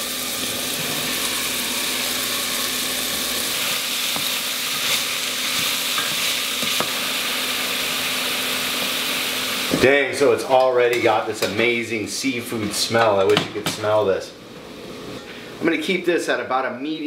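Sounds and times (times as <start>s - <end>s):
vegetables sizzling in butter: 0.0s - 9.8s.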